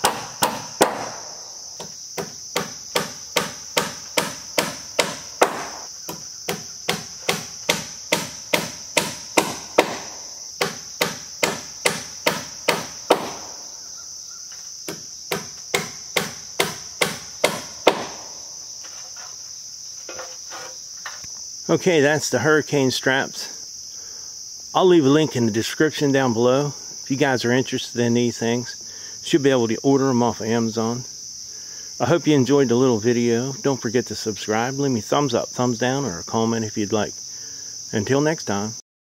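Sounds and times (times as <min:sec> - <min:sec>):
hammer driving nails: 0:00.0 - 0:01.2, 0:01.8 - 0:13.6, 0:14.9 - 0:18.4
insects chirring: 0:00.0 - 0:38.8.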